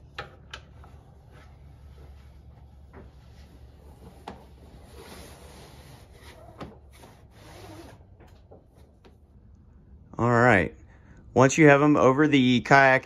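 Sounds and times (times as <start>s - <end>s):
strap rubbing and sliding: 0.3s - 9.1s.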